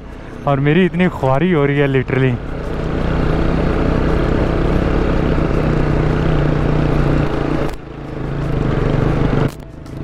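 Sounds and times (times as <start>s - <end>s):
motorcycle engine under load: 2.1s - 10.0s.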